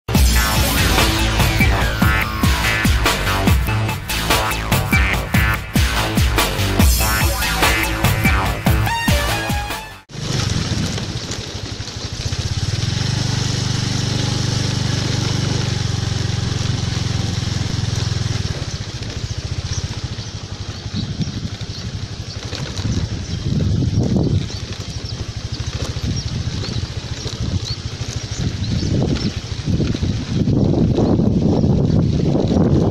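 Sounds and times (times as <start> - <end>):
engine running: 0.0 - 32.9
electronic intro music: 0.1 - 10.1
low rumbles on microphone: 17.3 - 32.9.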